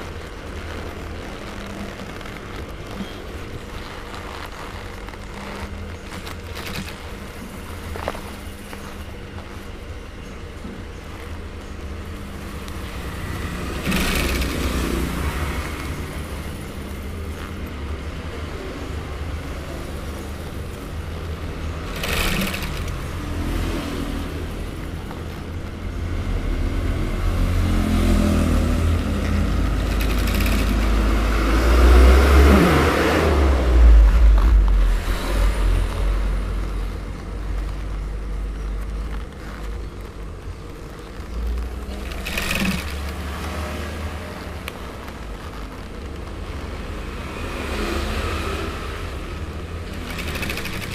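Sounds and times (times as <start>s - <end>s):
sewing machine stitching leather: 0.0s - 9.7s, 12.0s - 17.9s, 19.4s - 25.6s, 28.5s - 36.0s, 37.3s - 50.9s
motor low hum: 0.0s - 50.1s
vehicles passing: 0.0s - 50.9s.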